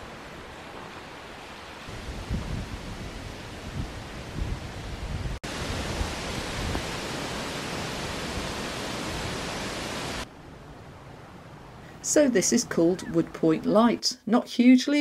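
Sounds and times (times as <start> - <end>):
wind gusts buffeting microphone: 0.0 - 11.8
wind rushing hiss: 0.0 - 12.1.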